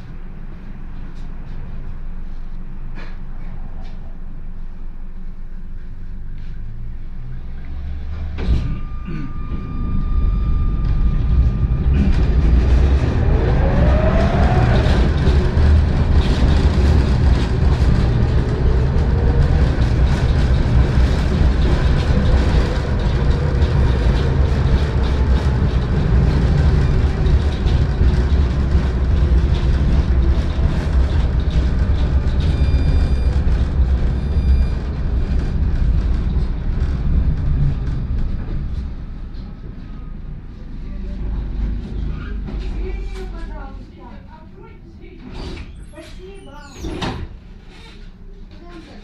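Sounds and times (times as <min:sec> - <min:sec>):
tram rumbling on rails: 0:00.0 - 0:49.0
rattling clicks from wheels: 0:11.9 - 0:39.5.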